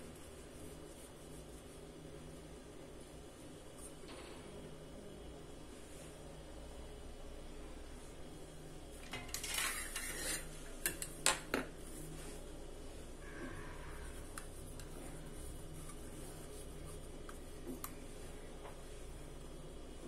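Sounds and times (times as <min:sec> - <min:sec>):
dough rubbing on cone: 0:00.0 - 0:03.8, 0:13.9 - 0:20.0.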